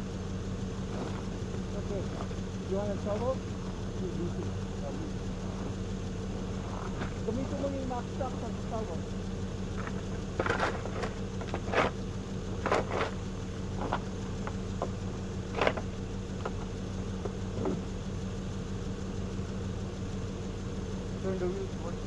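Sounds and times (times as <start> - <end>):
truck engine idling: 0.0 - 22.0
digging scrapes and clanks on stones: 9.8 - 12.0, 12.6 - 13.2.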